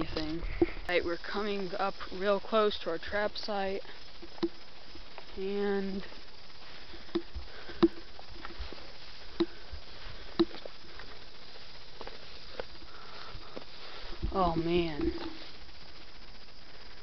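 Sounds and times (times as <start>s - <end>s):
footsteps through dry grass: 6.0s - 17.0s.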